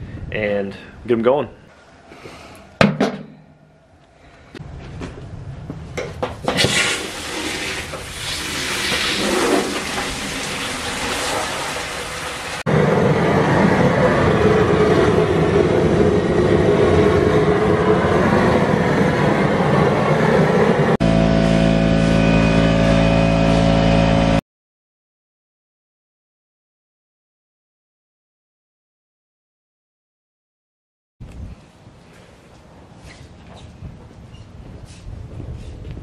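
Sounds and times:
knocks on a metal tub: 0:02.8 - 0:03.4
propane burner rushing: 0:06.4 - 0:23.8
steady hum: 0:20.9 - 0:24.4.

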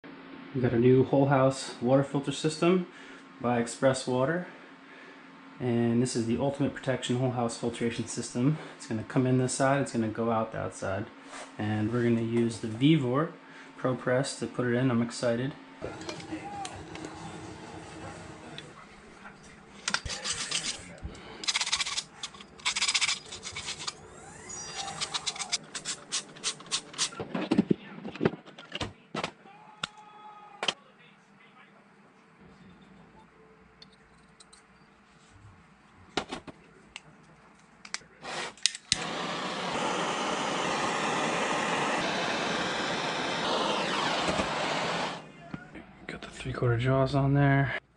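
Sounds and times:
gas torch hissing: 0:15.8 - 0:18.8, 0:23.4 - 0:27.1, 0:38.2 - 0:45.3
gas torch igniter clicks: 0:38.6 - 0:42.1.

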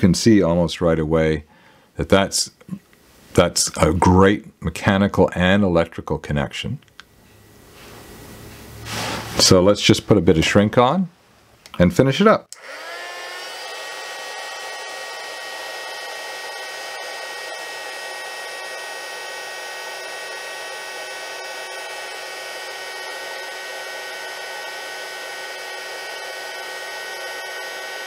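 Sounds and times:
heat gun fan whine: 0:12.5 - 0:28.0.

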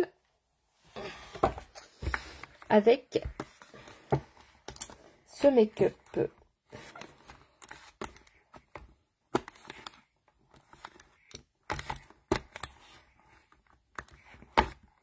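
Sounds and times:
plastic makeup products rummaged: 0:01.3 - 0:15.0.

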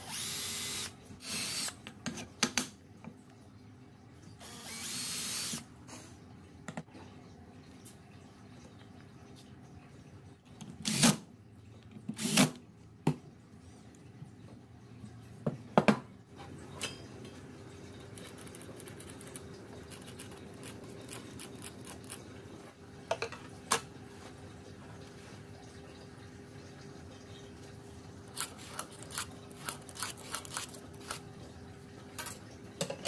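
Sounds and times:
cordless drill driving screws: 0:04.4 - 0:05.6.

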